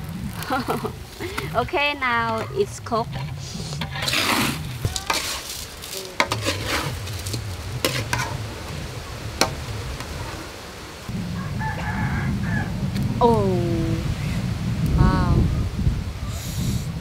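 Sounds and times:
metal spatula scraping a wok: 0:02.3 - 0:08.8.

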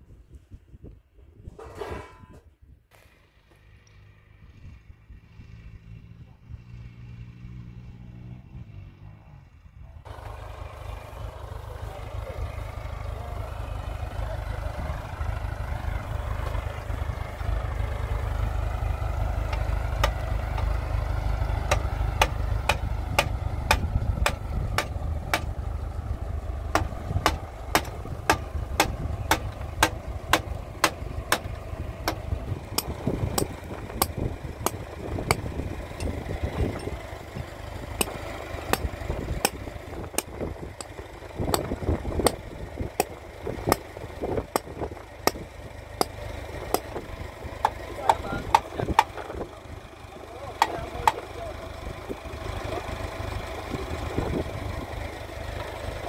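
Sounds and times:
tractor engine running: 0:09.6 - 0:56.0
sharp knocks: 0:21.7 - 0:25.5, 0:26.7 - 0:32.2.

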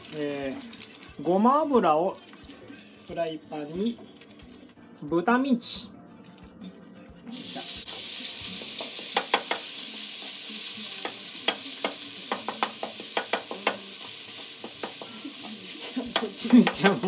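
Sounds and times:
meat sizzling in a frying pan: 0:07.3 - 0:17.0.

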